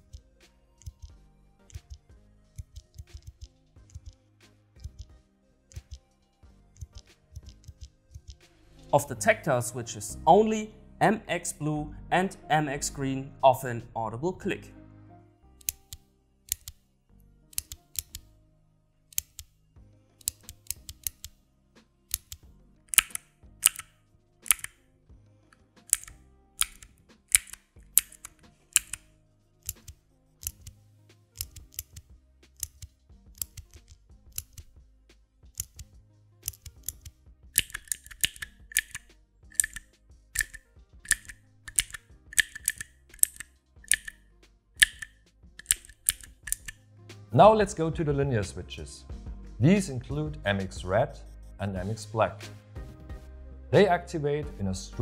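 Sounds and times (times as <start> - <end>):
clicky keyboard switches clicking: 0.8 - 1.1, 5.7 - 6.0, 15.6 - 16.8, 17.5 - 18.2, 19.1 - 19.5, 20.2 - 21.3, 22.1 - 24.8, 25.9 - 29.0, 29.6 - 30.7, 31.4 - 32.0, 32.6 - 34.7, 35.6 - 39.0, 39.6 - 39.8, 40.4 - 44.2, 44.8 - 46.8.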